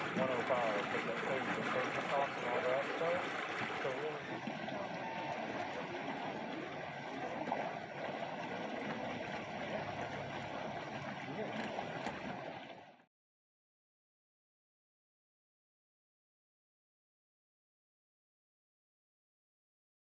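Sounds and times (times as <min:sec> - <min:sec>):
water washing at shoreline: 0:00.0 - 0:13.1.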